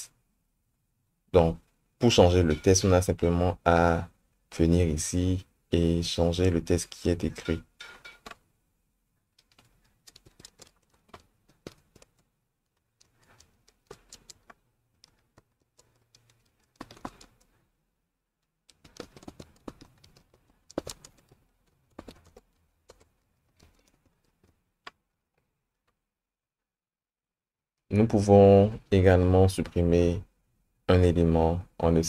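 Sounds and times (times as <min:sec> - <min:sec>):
computer keyboard typing: 0:09.4 - 0:17.6, 0:18.6 - 0:24.6.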